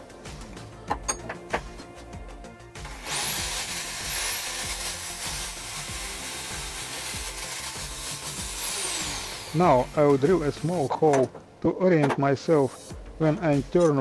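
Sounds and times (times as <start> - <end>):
drill press whining: 2.8 - 10.9.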